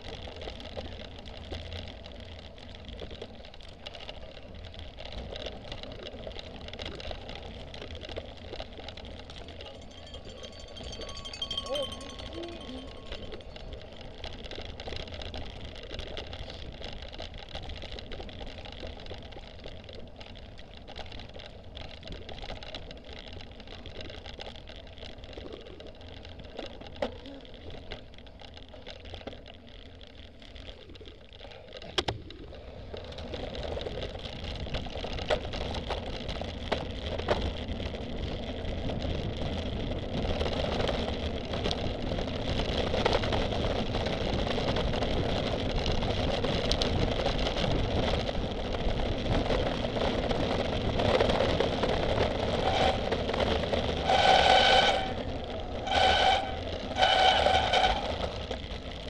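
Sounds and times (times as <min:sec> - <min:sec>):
bike rattling on rough ground: 0:00.0 - 0:59.0.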